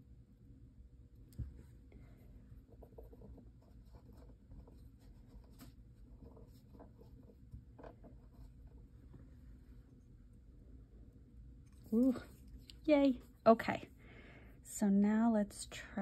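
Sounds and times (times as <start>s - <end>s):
faint scratching and clicks: 1.1s - 13.9s.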